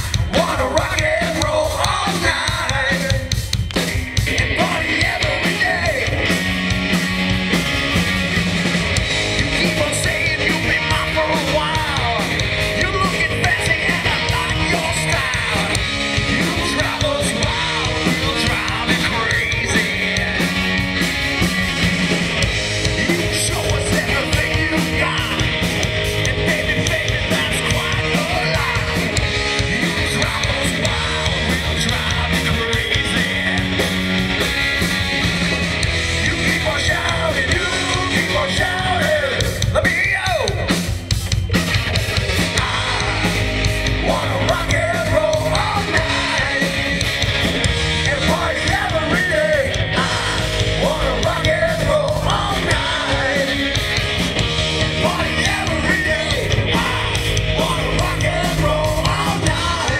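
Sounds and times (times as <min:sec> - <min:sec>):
singer shouting vocals: 0:00.0 - 0:03.4, 0:04.2 - 0:06.3, 0:09.4 - 0:20.8, 0:22.9 - 0:34.0, 0:36.1 - 0:40.9, 0:42.3 - 0:47.2, 0:47.8 - 0:59.9
rock band playing live: 0:00.0 - 0:59.9
steady drum beat: 0:00.0 - 0:59.9.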